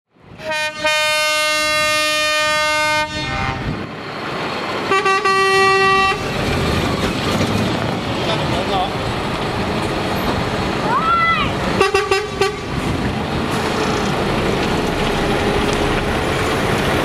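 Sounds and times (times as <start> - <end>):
diesel engines: 0.1 - 17.0
truck air horn: 0.4 - 3.8, 4.9 - 6.3, 11.8 - 12.7.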